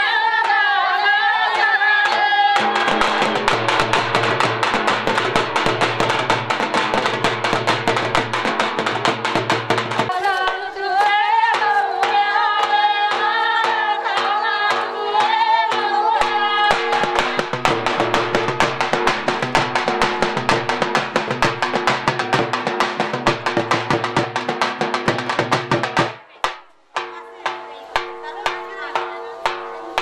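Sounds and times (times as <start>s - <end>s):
women singing: 0.0s - 4.1s, 10.1s - 18.6s, 27.0s - 30.0s
drum beaten with sticks: 0.0s - 30.0s.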